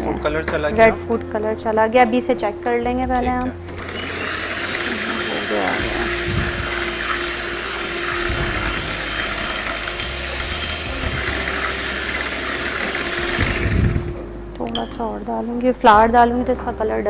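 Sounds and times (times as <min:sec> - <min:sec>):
electric hand mixer whirring: 0:03.3 - 0:14.3.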